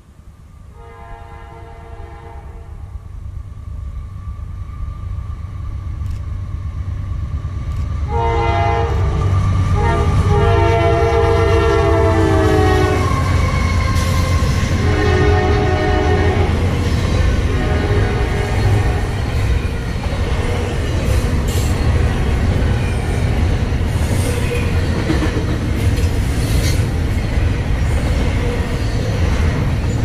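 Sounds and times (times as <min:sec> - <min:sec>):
diesel locomotive engine rumble: 0:00.0 - 0:30.0
locomotive air horn blasts: 0:00.7 - 0:02.9, 0:08.1 - 0:16.7, 0:17.4 - 0:19.3.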